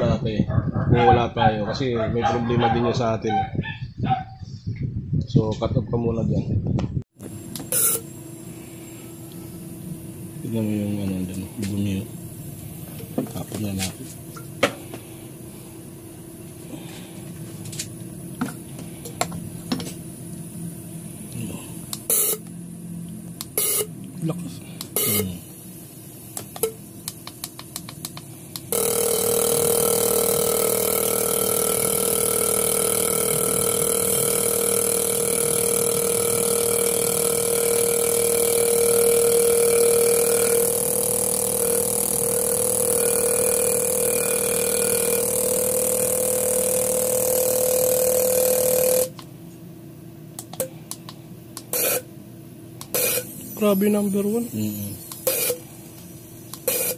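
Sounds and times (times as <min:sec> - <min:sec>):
fuel injector buzzing: 0:07.2 - 0:20.1, 0:20.8 - 0:22.6, 0:23.3 - 0:24.0, 0:24.6 - 0:49.3, 0:50.4 - 0:52.1, 0:52.8 - 0:56.9
fuel injector clicks: 0:26.3 - 0:35.9.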